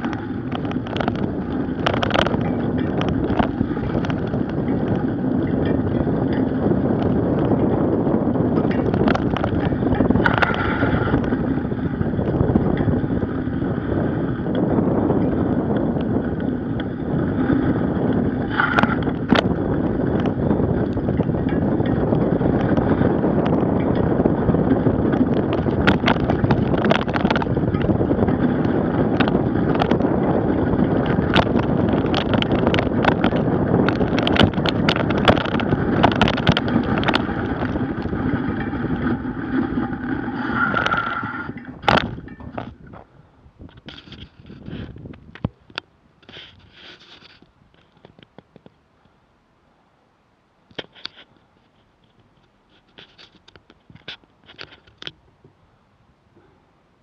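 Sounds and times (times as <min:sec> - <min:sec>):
sharp clicks and rattles: 0:00.0 - 0:13.4, 0:18.0 - 0:43.0, 0:50.7 - 0:55.2
bicycle tyre rolling on snow: 0:00.0 - 0:48.6
wind on microphone: 0:00.0 - 0:49.2.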